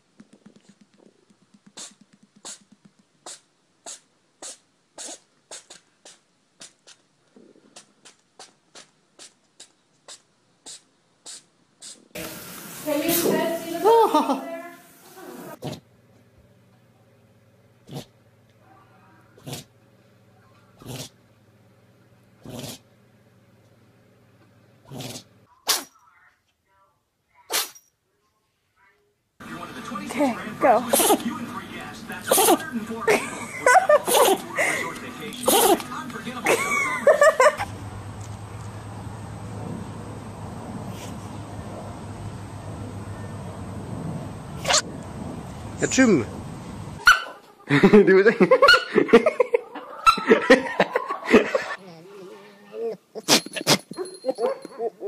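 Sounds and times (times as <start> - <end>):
kitten sneezing: 1.6 - 7.0, 7.8 - 12.1, 24.9 - 26.0, 27.5 - 27.9, 30.9 - 31.3, 32.3 - 32.7, 33.9 - 34.5, 35.4 - 35.9, 53.2 - 53.9.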